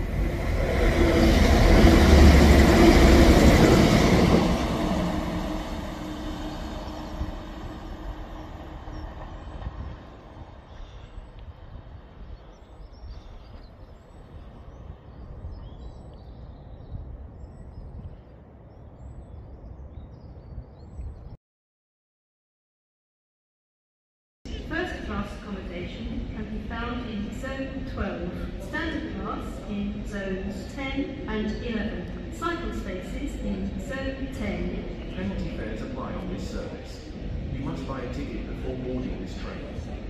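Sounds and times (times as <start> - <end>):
wheel on rail rumble: 0.0 - 12.2
train engine hum: 0.0 - 19.2, 24.5 - 40.0.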